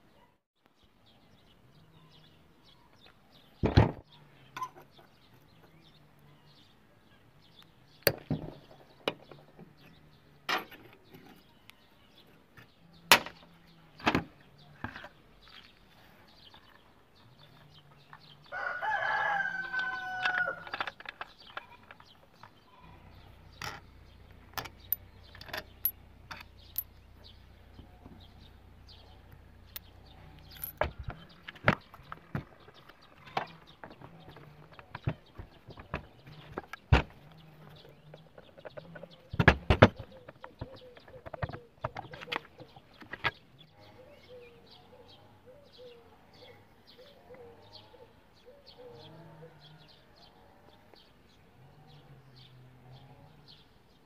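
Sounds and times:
rooster crowing: 0:18.5 - 0:20.7
metal tools clinking on engine casing: 0:24.5 - 0:26.9, 0:29.7 - 0:31.3.

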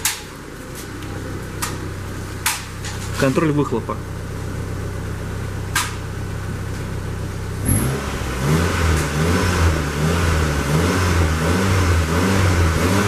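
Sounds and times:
car engine exhaust revving: 0:04.0 - 0:13.0.

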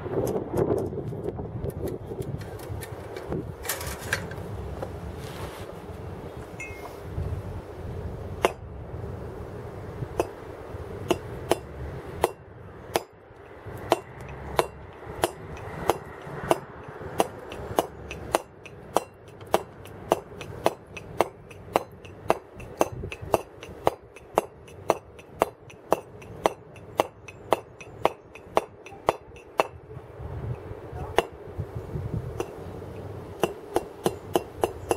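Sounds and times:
mallet striking chisel on stone: 0:13.9 - 0:29.8, 0:33.4 - 0:34.9.

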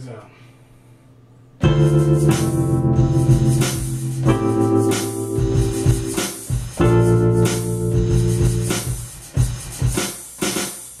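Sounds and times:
sustained synth chords: 0:01.6 - 0:06.2.

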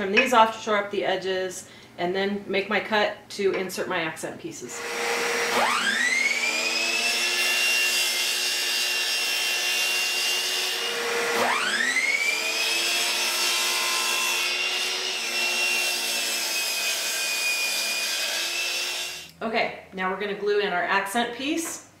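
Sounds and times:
miter saw whining: 0:04.8 - 0:17.4.

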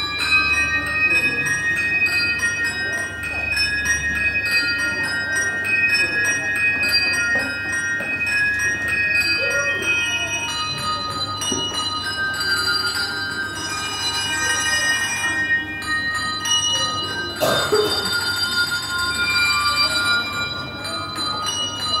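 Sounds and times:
handbells ringing melody: 0:00.0 - 0:22.0.

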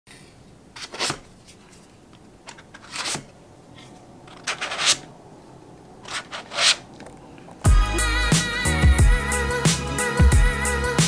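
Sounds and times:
plastic scraping against foam: 0:06.0 - 0:06.9.

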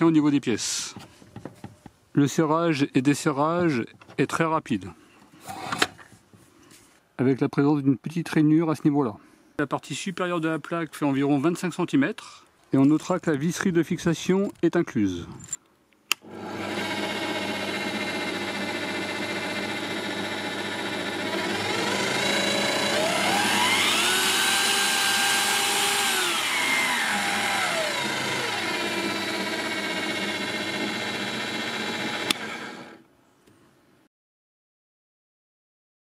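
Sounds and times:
pillar drill motor whining: 0:16.2 - 0:33.0.

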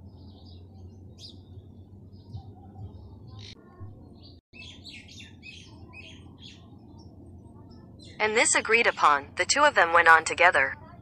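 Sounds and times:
steady low hum: 0:00.0 - 0:11.0
small birds chirping: 0:00.1 - 0:09.2.

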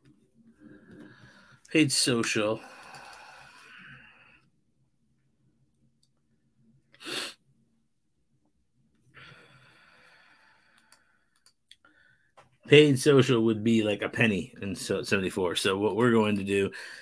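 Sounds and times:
faint breath hiss: 0:00.5 - 0:04.6, 0:06.8 - 0:07.5, 0:09.1 - 0:13.3, 0:16.5 - 0:17.0.

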